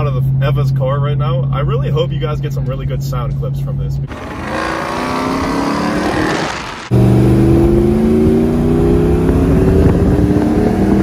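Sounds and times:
truck engine accelerating: 4.0s - 11.0s
truck engine pulling trailer: 4.1s - 7.1s.

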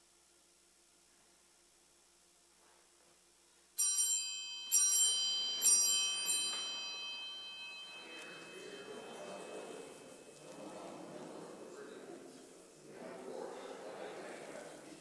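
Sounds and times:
small bell ringing: 3.8s - 11.6s
low rustle of people standing: 5.0s - 15.0s.

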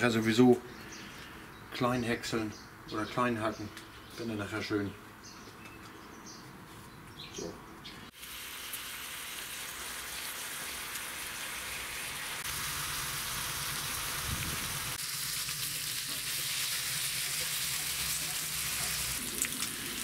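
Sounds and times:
bacon sizzling in a skillet: 8.1s - 20.0s.

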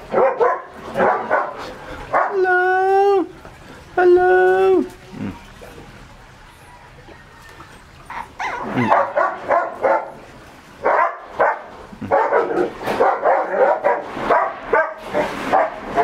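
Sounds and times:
puppies barking and whining: 6.5s - 10.2s.

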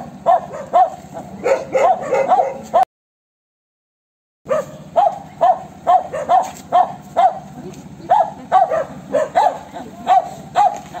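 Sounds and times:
dog yipping: 0.2s - 2.8s, 4.5s - 7.5s, 8.1s - 11.0s.

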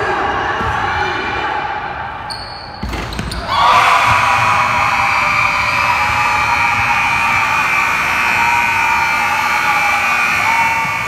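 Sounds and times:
crowd noise: 0.0s - 11.0s.

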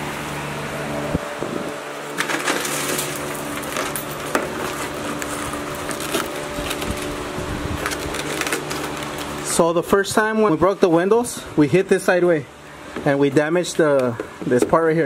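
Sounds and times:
background hum: 0.0s - 15.0s
broken glass crackling and crunching: 2.1s - 7.2s, 7.8s - 9.3s.

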